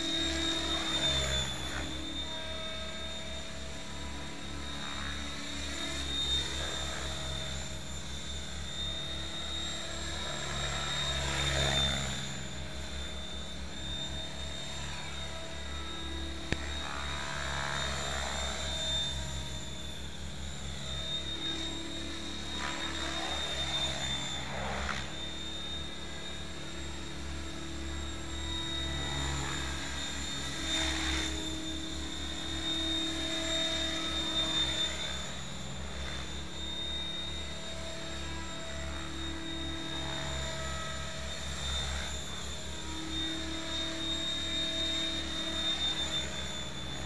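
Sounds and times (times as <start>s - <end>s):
rc helicopter motor and rotor whine: 0.0s - 47.0s.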